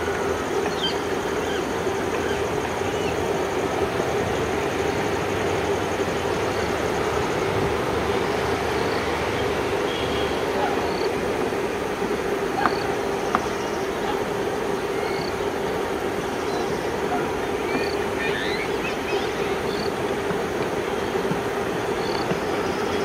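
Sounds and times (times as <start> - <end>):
diesel locomotive engines droning: 0.0 - 23.0.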